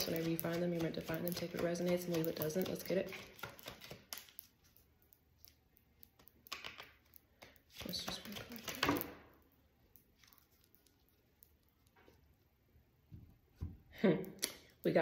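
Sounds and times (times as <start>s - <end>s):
cards tapping and flicking: 0.0s - 4.5s, 5.5s - 9.2s
cards rustling: 0.0s - 9.2s.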